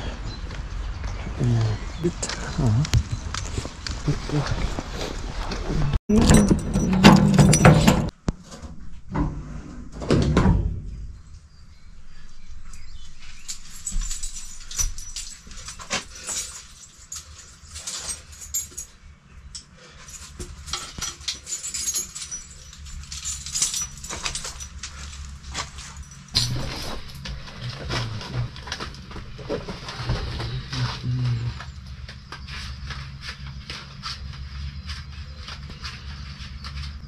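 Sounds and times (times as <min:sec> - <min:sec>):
equipment clattering in metal container: 0:06.1 - 0:08.1, 0:20.0 - 0:30.7
key and padlock rattling: 0:06.1 - 0:08.1, 0:13.4 - 0:18.9, 0:20.0 - 0:29.0.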